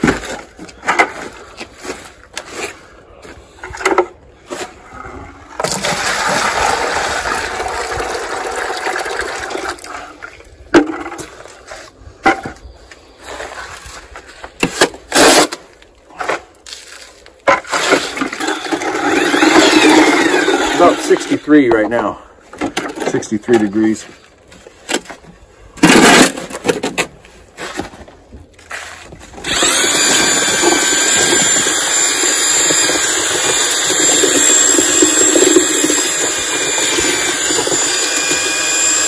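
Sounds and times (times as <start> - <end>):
hose water running into bucket: 5.6 - 10.5, 17.7 - 21.5, 29.4 - 39.0.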